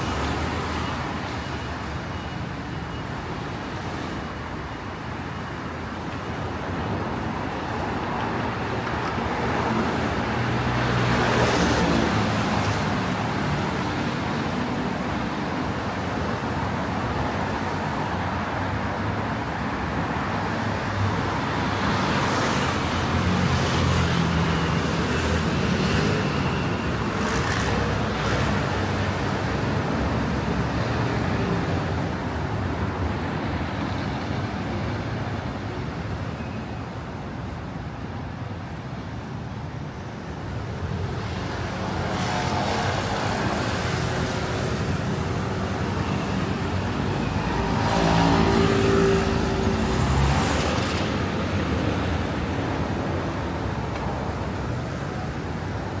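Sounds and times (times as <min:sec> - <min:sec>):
cars passing: 0:38.3 - 0:56.0.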